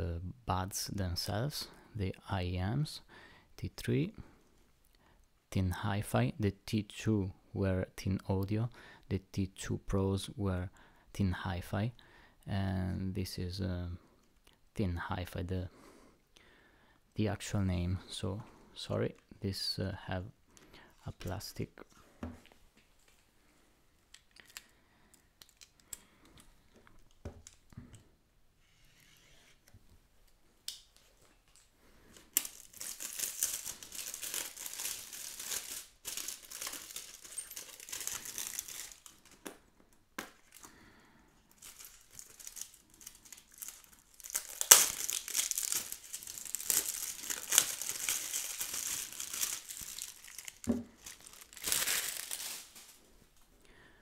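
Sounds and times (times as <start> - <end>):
plastic film crinkling: 31.1 - 39.6, 41.5 - 53.4.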